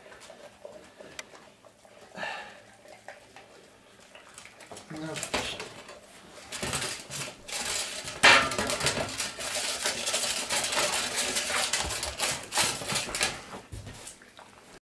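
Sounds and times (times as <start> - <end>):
dog eating from metal bowl: 0.0 - 14.7
metal bowl clattering: 4.8 - 13.5.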